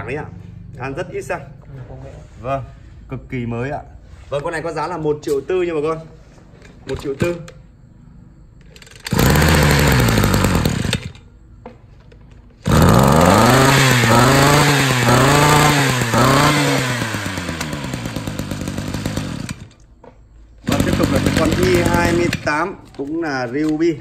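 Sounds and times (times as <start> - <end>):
brush cutter engine revving: 8.9 - 11.2, 12.6 - 19.8, 20.6 - 22.6.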